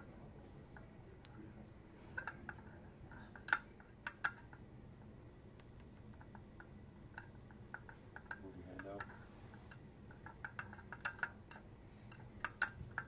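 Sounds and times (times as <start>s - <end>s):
faint steady hum: 0.0s - 13.0s
glass rod clinking against beaker: 2.2s - 4.6s, 7.2s - 13.0s.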